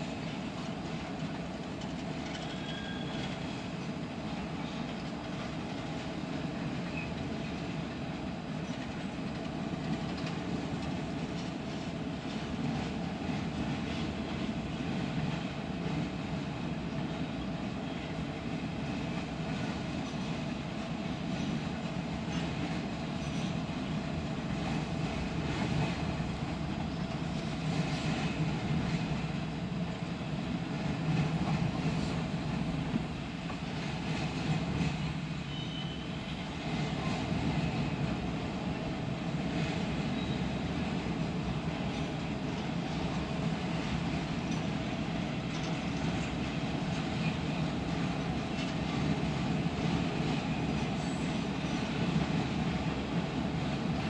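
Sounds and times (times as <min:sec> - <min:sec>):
train wheels rumbling on rail: 0:00.0 - 0:54.0
wheels clicking over rail joints: 0:41.8 - 0:50.9.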